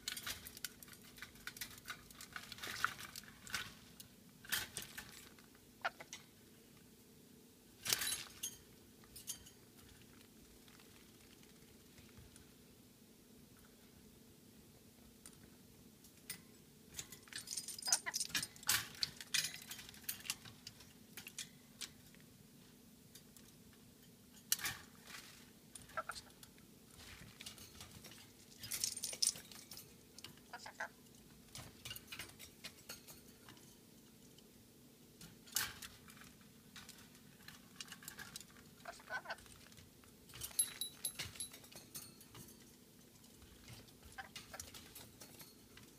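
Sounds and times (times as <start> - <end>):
light metallic rattles: 7.8 - 10.1, 16.1 - 22.2, 23.1 - 34.4, 35.2 - 45.9.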